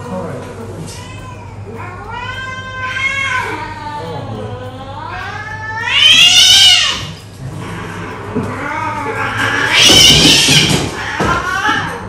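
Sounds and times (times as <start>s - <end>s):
cat yowling: 5.0s - 7.2s, 8.5s - 12.0s.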